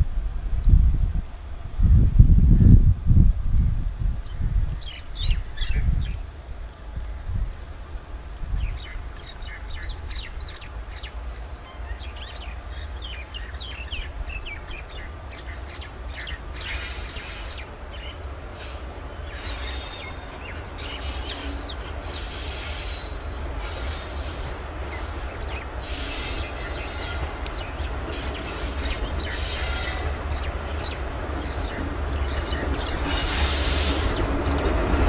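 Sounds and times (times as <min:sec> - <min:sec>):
birds chirping: 0:04.2 - 0:06.2, 0:08.3 - 0:35.0
train wheels squealing on rails: 0:08.6 - 0:35.0.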